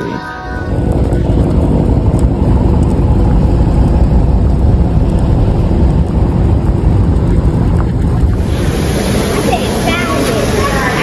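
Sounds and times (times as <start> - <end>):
car engine and road rumble: 0.0 - 8.6.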